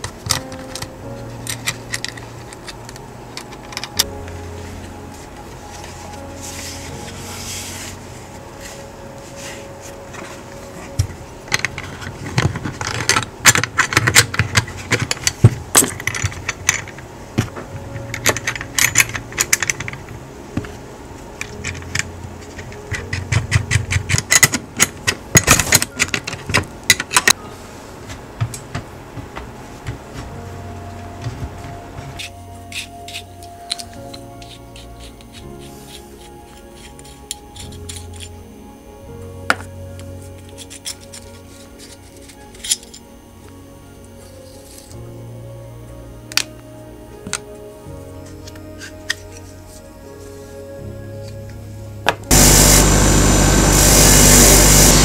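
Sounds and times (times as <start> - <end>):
metal bicycle parts clinking: 18.0 - 20.0, 40.5 - 43.0.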